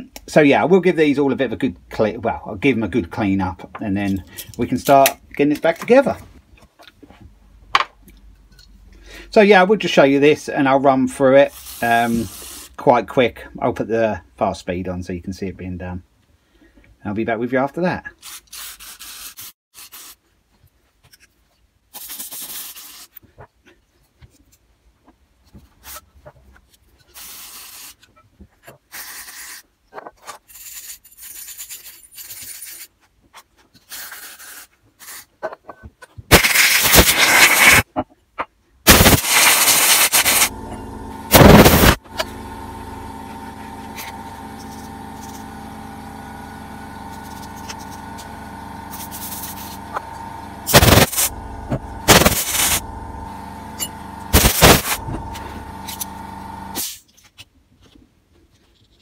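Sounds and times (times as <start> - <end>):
scraping small metal parts: 33.6 - 37.8, 48.9 - 49.9
compressed air blasts: 36.3 - 37.9, 38.9 - 42.4, 46.9 - 57.0
steady mechanical hum: 38.9 - 56.9.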